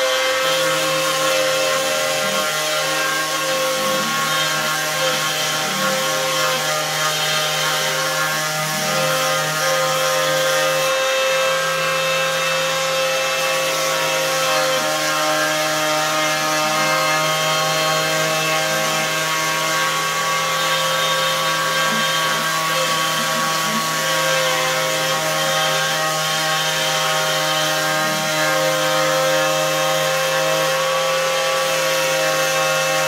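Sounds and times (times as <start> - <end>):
orbit sander humming and whining: 0.0 - 33.0.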